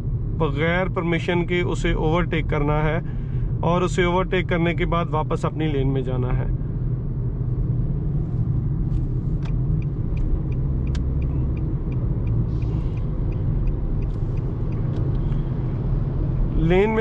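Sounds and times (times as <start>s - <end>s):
car engine and road rumble: 0.0s - 17.0s
turn signal ticking: 8.4s - 17.0s.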